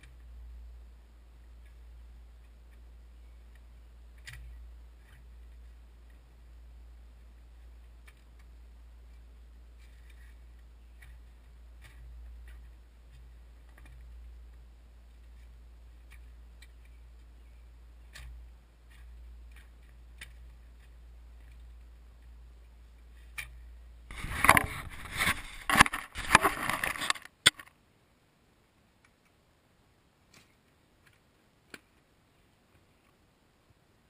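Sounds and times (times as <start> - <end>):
camera handling scraping: 24.1 - 27.7.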